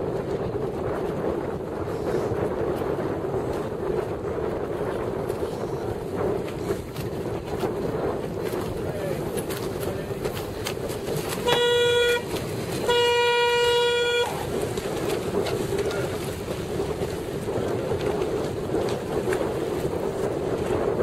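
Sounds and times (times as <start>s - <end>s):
wind noise on microphone: 0.0s - 21.0s
signal horn blasts: 11.4s - 14.5s.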